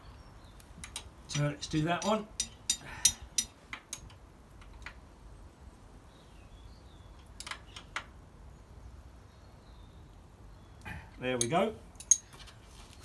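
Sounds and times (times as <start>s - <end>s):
spanner clicking on metal nut: 0.8s - 5.0s, 11.4s - 12.3s.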